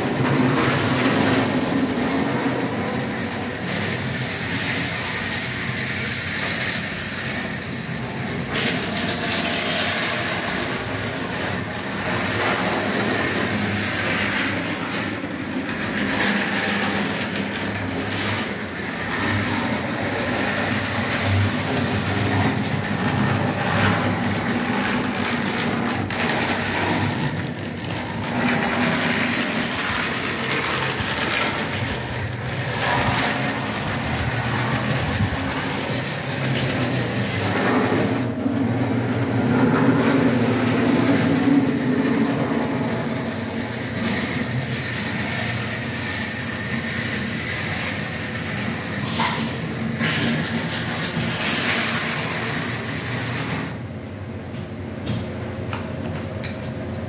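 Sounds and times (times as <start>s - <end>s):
steady high whine: 0.0s - 56.0s
model train wheels rolling: 3.5s - 38.3s.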